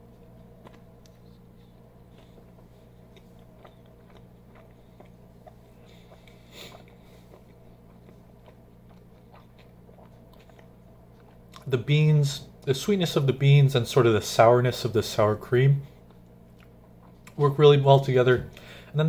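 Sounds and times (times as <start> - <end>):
low steady hum: 0.0 - 19.0
closed-mouth chewing: 0.1 - 11.7, 16.0 - 17.5.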